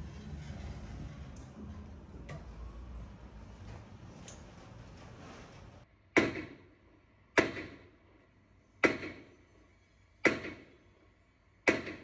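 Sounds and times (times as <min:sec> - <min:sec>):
sharp knocks: 0:06.2 - 0:06.6, 0:07.4 - 0:07.8, 0:11.7 - 0:12.0.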